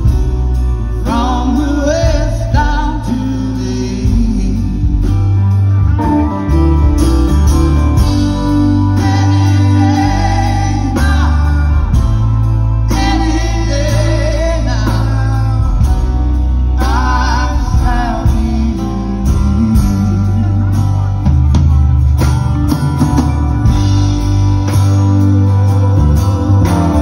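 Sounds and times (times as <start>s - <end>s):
live band playing slow song: 0.0s - 27.0s
person singing: 7.8s - 21.3s.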